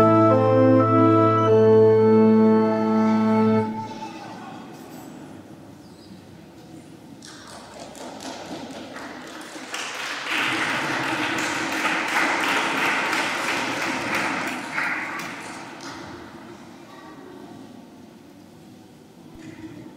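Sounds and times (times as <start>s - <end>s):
people talking: 0.0s - 5.0s, 16.4s - 18.6s
congregation applauding: 7.2s - 16.2s.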